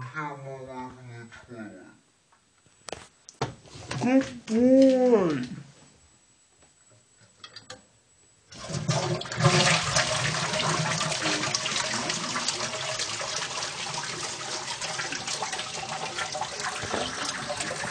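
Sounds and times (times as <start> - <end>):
toilet flushing: 8.5 - 17.9.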